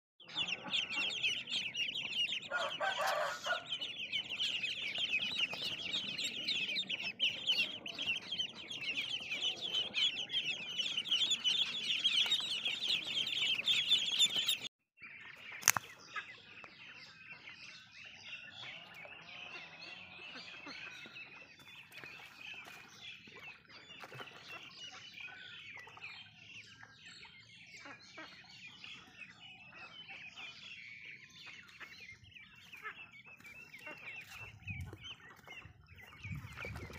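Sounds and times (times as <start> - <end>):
ducklings peeping: 0.2 - 36.9
sharp click: 15.6 - 15.9.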